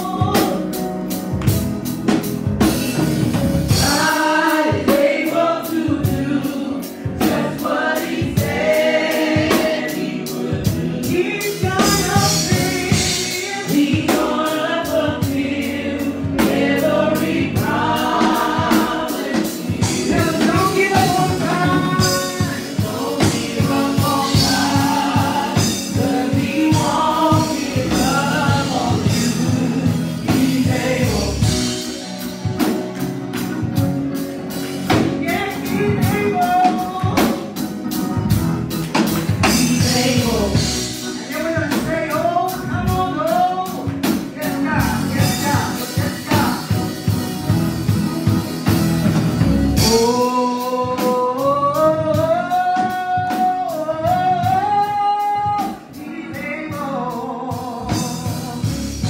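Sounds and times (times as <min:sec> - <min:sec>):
drum kit beat with cymbals: 0:00.0 - 0:59.0
group singing gospel: 0:00.0 - 0:59.0.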